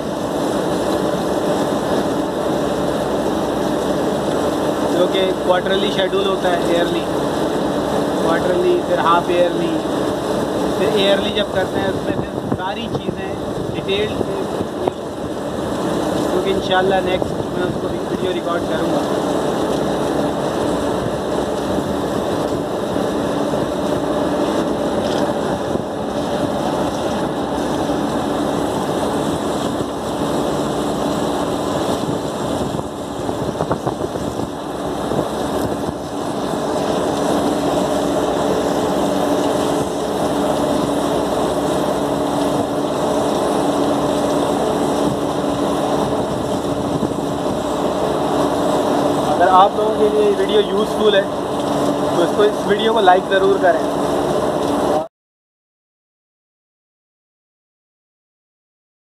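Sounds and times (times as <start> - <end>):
chiller plant droning: 0.0 - 55.1.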